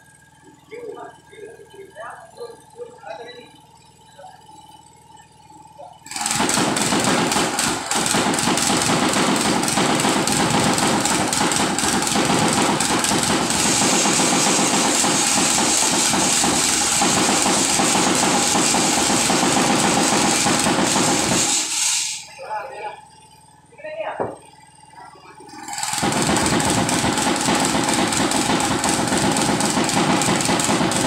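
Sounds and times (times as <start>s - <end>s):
tamping rammer engine running: 5.5s - 22.3s, 24.8s - 31.0s.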